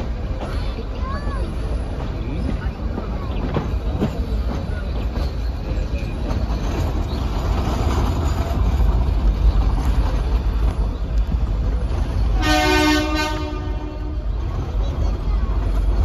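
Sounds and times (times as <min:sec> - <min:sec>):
train rumbling: 0:00.0 - 0:16.0
train horn: 0:12.3 - 0:14.4.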